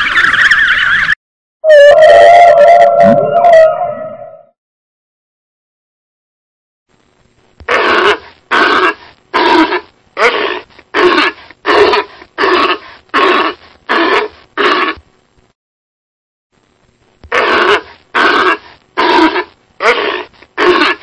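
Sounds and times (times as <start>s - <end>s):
walrus calls: 7.7s - 15.0s, 17.3s - 21.0s.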